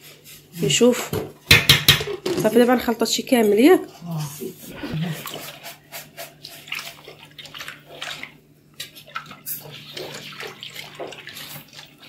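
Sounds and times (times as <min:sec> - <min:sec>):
liquid sloshing in a metal pot: 0:05.0 - 0:12.0.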